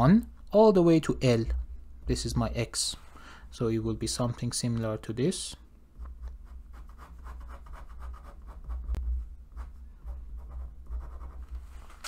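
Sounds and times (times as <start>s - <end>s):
pen scribbling on paper: 6.4s - 11.5s.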